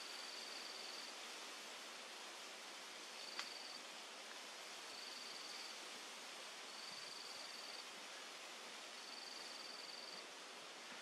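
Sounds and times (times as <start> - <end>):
outdoor hiss: 0.0 - 11.0.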